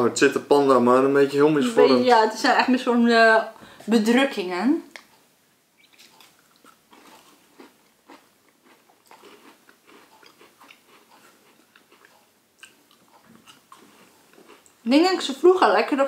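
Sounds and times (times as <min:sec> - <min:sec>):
biscuits crunching and chewing: 0:04.9 - 0:14.9.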